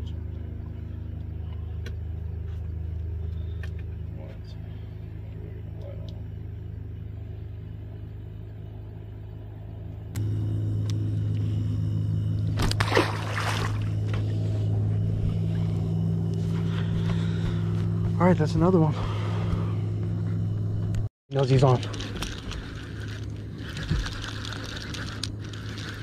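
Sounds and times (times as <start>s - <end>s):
low motor hum: 0.0s - 26.0s
fish splashing into water: 12.6s - 14.0s.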